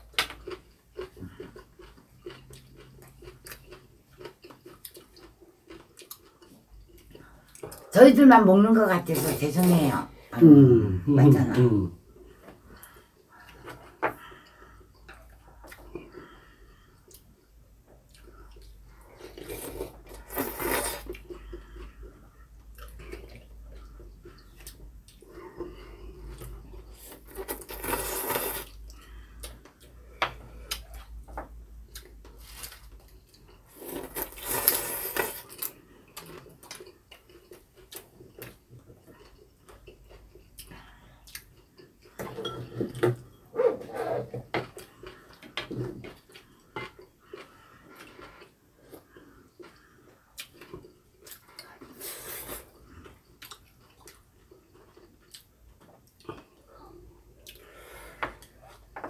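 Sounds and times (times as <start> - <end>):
chewing: 0.2 - 7.9, 12.2 - 30.0, 31.8 - 42.3, 44.6 - 57.8
loud slurps of noodles: 27.5 - 28.8.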